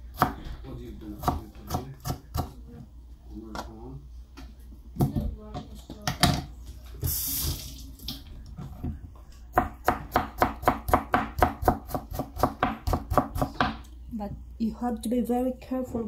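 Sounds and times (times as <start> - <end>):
knife chopping on plastic board: 0.1 - 0.5, 1.2 - 2.6, 9.5 - 13.8
brief hiss: 7.0 - 7.9.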